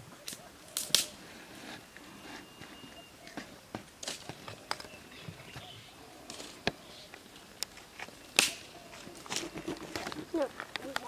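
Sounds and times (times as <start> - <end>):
sharp crack: 0.2 - 1.2, 8.3 - 8.7
stones and gravel shifting: 7.7 - 11.0.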